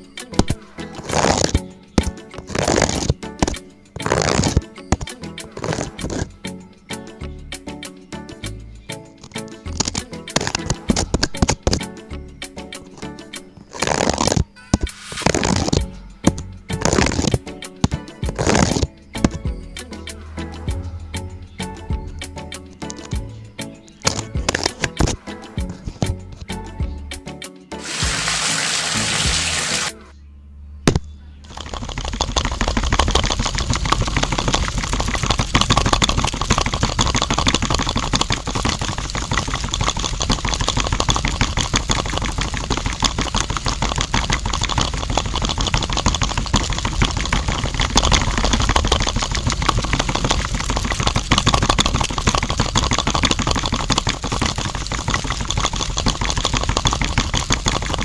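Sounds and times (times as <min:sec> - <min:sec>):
small mixer motor rattling: 0:02.4 - 0:06.3, 0:31.4 - 0:58.0
water pouring onto sand: 0:27.8 - 0:30.0, 0:31.5 - 0:58.0.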